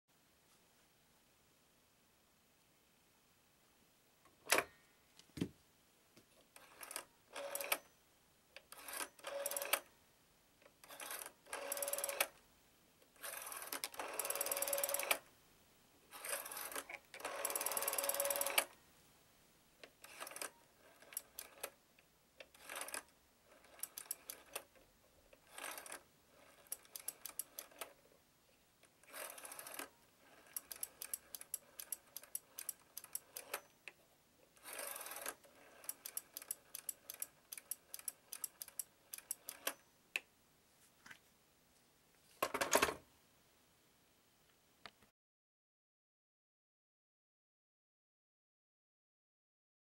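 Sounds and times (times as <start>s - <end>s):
rotary dial clicking: 16.7s - 18.7s, 23.6s - 24.7s, 30.5s - 33.6s, 34.7s - 39.8s.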